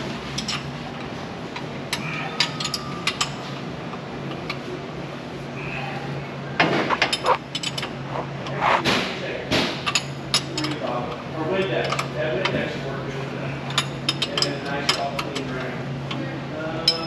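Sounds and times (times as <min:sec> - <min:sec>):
steady low hum: 0:00.0 - 0:11.4.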